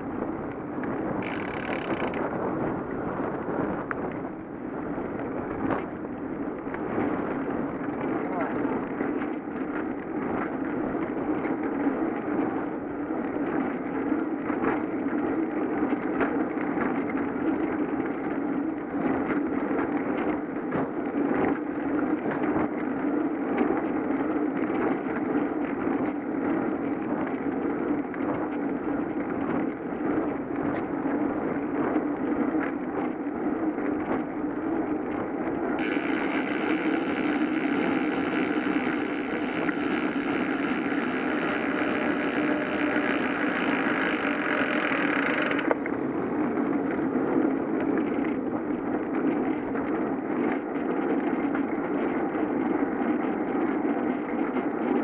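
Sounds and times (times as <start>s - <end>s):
wind rush: 0.0s - 15.6s
tyre on road noise: 0.0s - 55.0s
small clicks and rattles: 0.4s - 2.6s, 4.9s - 32.8s, 34.9s - 55.0s.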